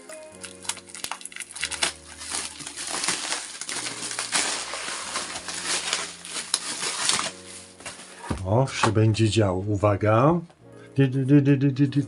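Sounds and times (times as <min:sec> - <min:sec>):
plastic and cardboard crinkling: 0:00.0 - 0:09.2
scissors cutting plastic and tape: 0:00.4 - 0:07.5.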